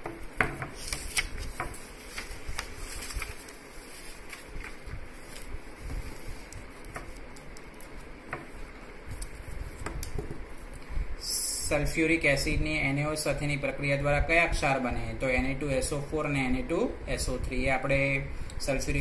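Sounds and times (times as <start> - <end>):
low room hum: 0.0 - 19.0
paper pages rustling: 0.6 - 10.8.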